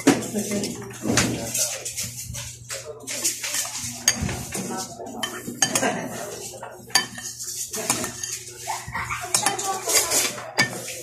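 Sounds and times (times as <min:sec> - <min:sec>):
cutlery clinking on a plate: 0:03.2 - 0:06.2, 0:06.9 - 0:08.5, 0:09.3 - 0:11.0.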